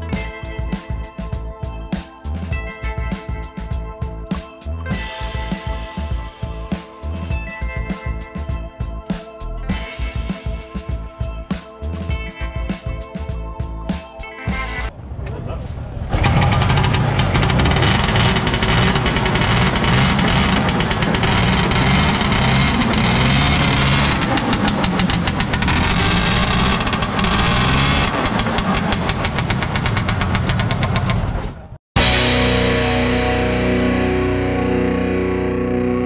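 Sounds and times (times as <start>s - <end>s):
distorted electric guitar music: 0.0s - 14.9s, 16.2s - 29.2s, 32.0s - 36.0s
snowmobile engine popping: 15.1s - 31.8s.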